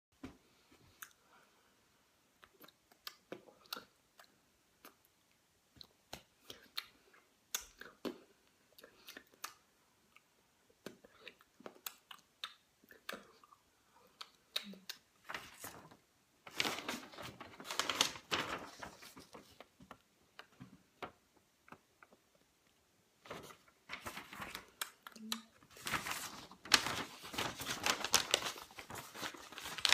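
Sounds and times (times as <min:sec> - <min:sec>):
paper map rustling: 0:15.2 - 0:21.8, 0:23.2 - 0:29.9.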